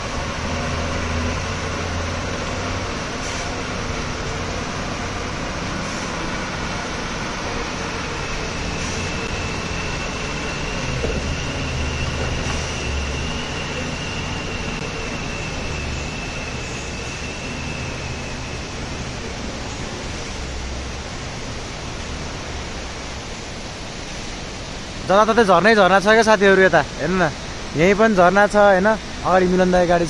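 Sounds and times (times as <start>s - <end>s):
truck diesel engine labouring: 0.0s - 30.0s
waterfall rushing: 0.0s - 30.0s
thin high whine: 3.1s - 20.5s.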